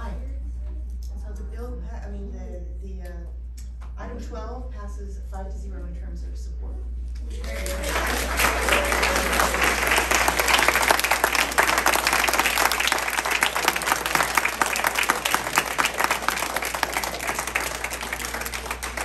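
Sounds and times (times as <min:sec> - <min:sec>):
audience applauding: 0:07.2 - 0:19.0.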